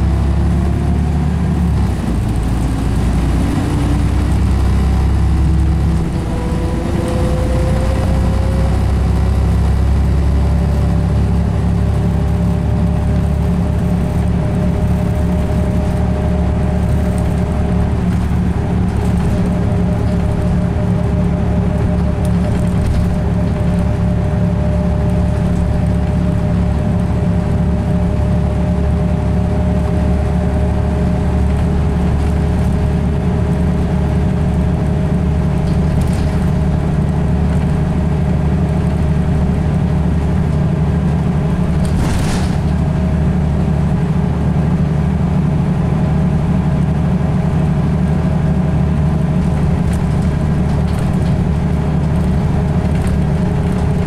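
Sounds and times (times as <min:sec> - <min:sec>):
bus diesel engine droning: 0:00.0 - 0:54.0
steady whine: 0:01.5 - 0:36.2
brief clatter: 0:35.5 - 0:36.6, 0:41.7 - 0:42.9.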